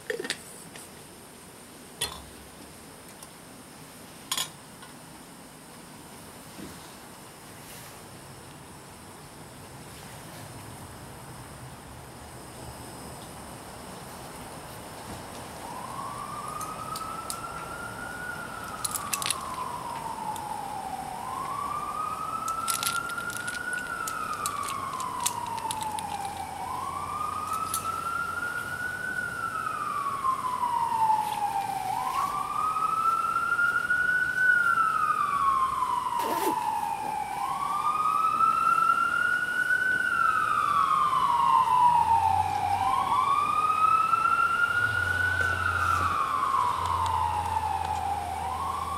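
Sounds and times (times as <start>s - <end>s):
emergency vehicle siren wailing: 15.4s - 48.9s.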